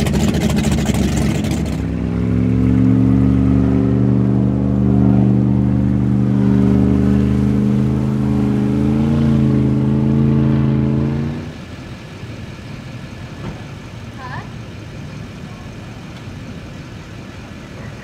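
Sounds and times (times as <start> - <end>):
powerboat engine running: 0.0 - 11.7.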